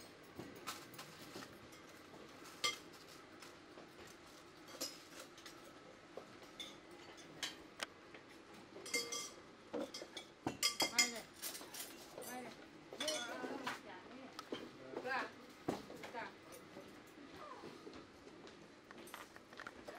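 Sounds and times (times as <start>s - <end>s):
cutlery and plates clinking: 0.6s - 3.2s, 4.0s - 5.7s, 8.8s - 13.8s.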